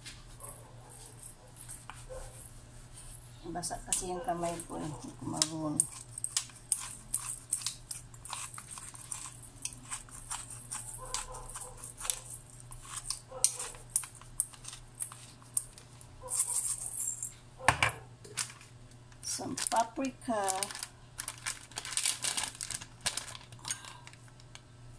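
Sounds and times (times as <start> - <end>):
pepper mill grinding: 3.6 - 17.3.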